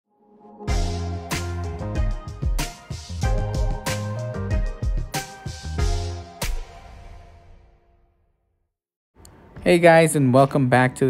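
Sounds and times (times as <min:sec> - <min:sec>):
intro music with beat: 0:00.6 - 0:07.7.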